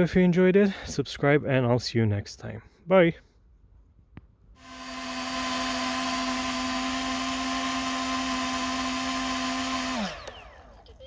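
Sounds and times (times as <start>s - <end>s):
model aircraft propellers whining: 4.6s - 11.0s.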